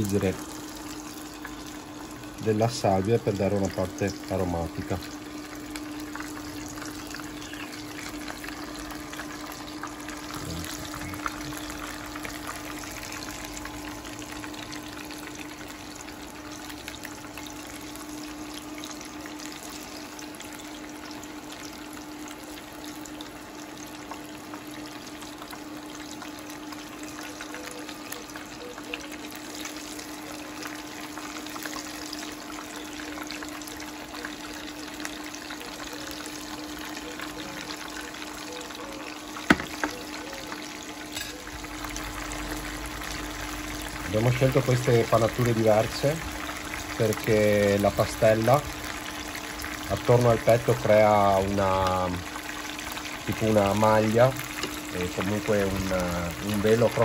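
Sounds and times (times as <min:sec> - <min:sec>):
steady low hum: 0:00.0 - 0:21.0
oil sizzling in a frying pan: 0:00.0 - 0:57.0.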